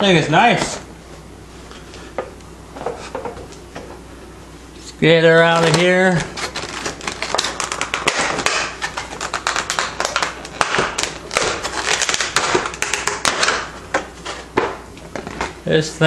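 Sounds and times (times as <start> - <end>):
plastic packaging crinkling: 5.4 - 14.5.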